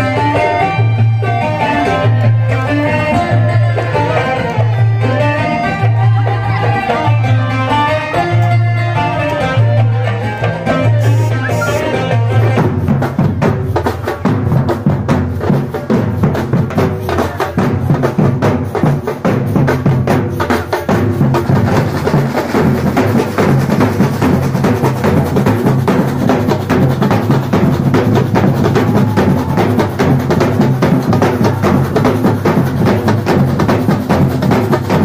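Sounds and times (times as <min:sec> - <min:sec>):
drum group playing: 0:00.0 - 0:35.0
deep low drum: 0:10.9 - 0:35.0.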